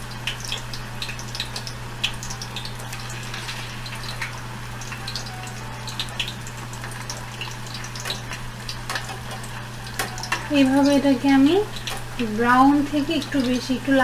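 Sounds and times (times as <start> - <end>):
potatoes deep-frying in oil: 0.0 - 14.0.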